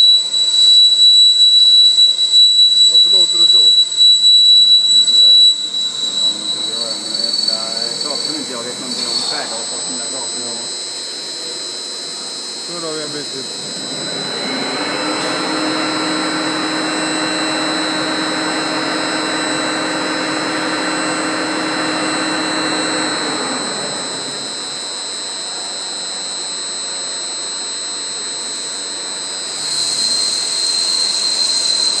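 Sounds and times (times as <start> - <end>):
machine high whine with hiss: 0.0 - 32.0
low machine hum: 2.2 - 25.6.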